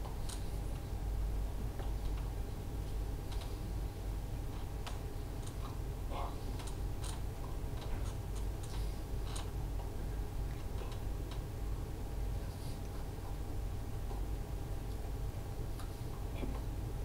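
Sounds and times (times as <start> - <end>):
low room tone hum: 0.0 - 17.0
faint irregular clicks and taps: 1.7 - 3.6.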